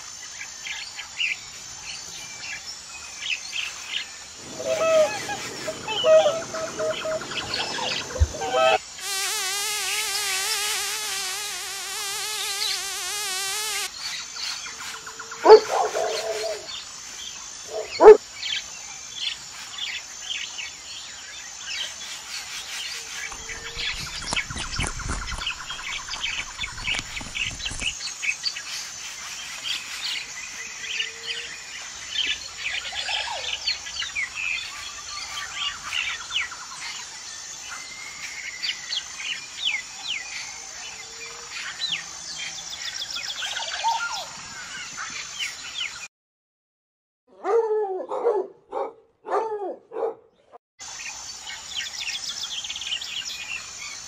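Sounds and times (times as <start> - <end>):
small birds chirping: 3.4 - 16.7, 22.0 - 28.8
dog barking loudly: 15.4 - 16.4, 17.7 - 18.2, 47.4 - 50.3.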